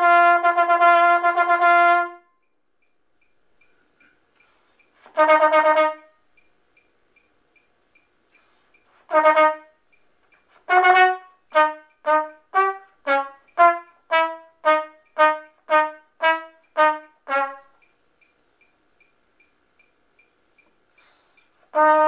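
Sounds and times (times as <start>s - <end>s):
mellophone playing tongued notes: 10.7s - 17.9s.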